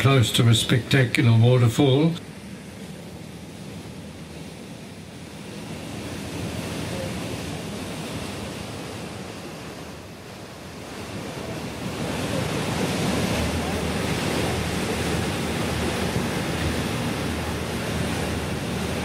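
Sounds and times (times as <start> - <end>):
waterfall rushing: 4.8 - 19.0.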